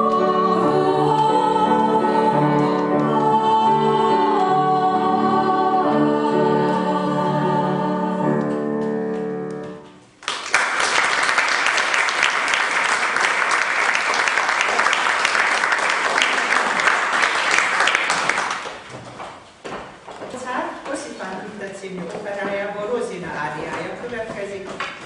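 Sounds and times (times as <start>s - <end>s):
voices with piano chord: 0.0s - 8.8s
audience applause: 10.2s - 18.9s.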